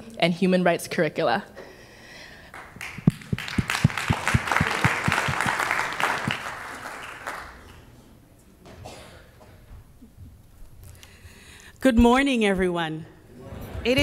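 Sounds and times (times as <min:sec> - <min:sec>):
audience applauding: 0:02.5 - 0:07.8
close hand claps: 0:02.5 - 0:07.9.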